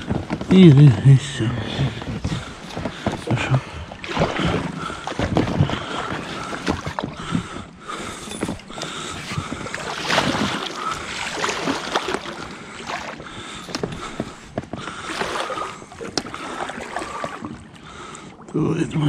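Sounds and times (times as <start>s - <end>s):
water splashing: 0.0s - 19.0s
knocks of boat hull and gear: 4.6s - 9.8s.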